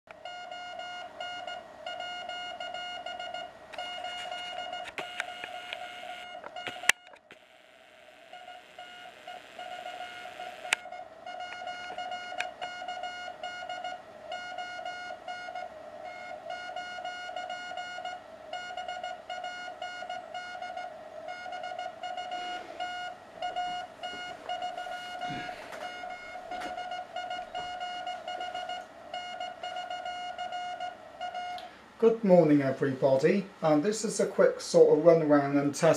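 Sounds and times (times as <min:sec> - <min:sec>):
morse code beeping tone: 0:00.2 - 0:07.1, 0:08.3 - 0:31.6
radio hiss: 0:05.0 - 0:10.8, 0:23.6 - 0:26.7.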